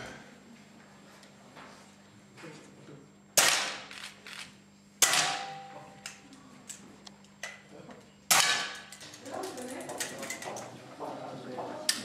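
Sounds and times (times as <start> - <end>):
pistol shots with echo: 3.4 - 3.9.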